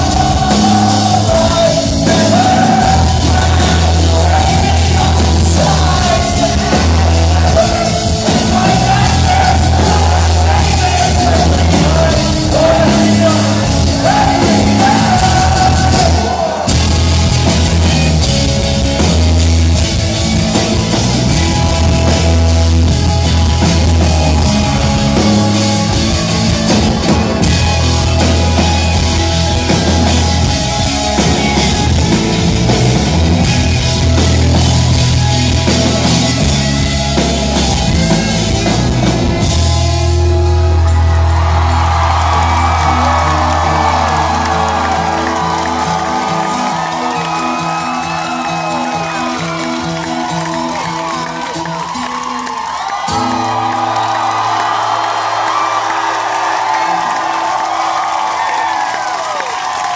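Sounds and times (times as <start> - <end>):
person singing: 0.0 - 16.8
live rock band playing: 0.0 - 59.9.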